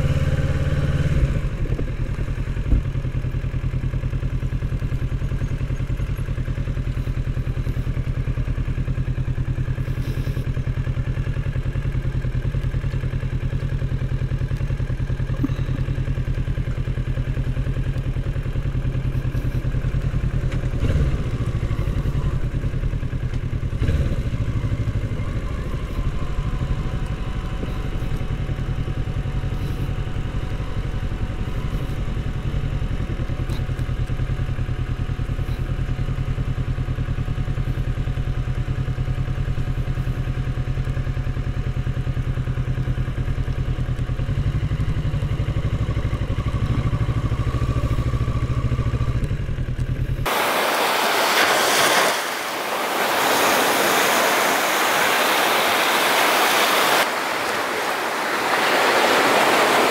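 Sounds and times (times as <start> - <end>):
motorcycle engine running: 0.0 - 50.5
waves breaking on a beach: 50.3 - 59.9.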